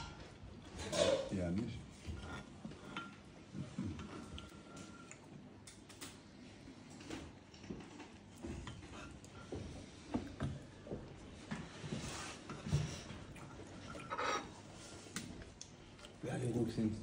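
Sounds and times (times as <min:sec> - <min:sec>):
dishes and glassware clinking: 0:00.0 - 0:03.3, 0:12.5 - 0:14.6
low room murmur: 0:00.0 - 0:17.0.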